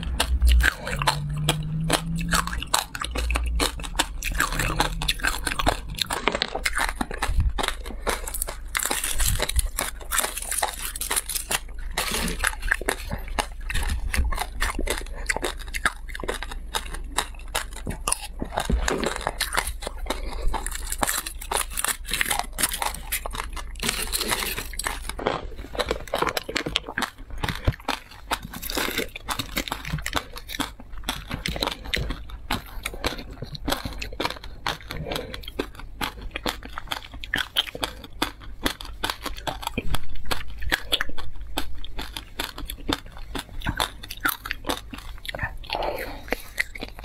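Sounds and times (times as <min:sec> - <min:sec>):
crunchy biting and chewing: 0:00.0 - 0:47.0
foil wrapper crinkling and tearing: 0:08.2 - 0:15.6.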